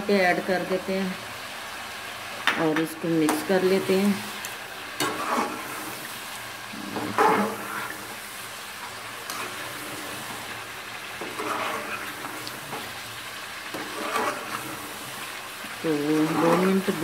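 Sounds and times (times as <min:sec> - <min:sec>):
chicken sizzling in a pot: 0:00.0 - 0:17.0
metal spoon scraping a pot: 0:05.0 - 0:05.9, 0:06.8 - 0:08.1, 0:09.2 - 0:10.4, 0:11.1 - 0:13.0, 0:13.6 - 0:15.2, 0:15.9 - 0:17.0.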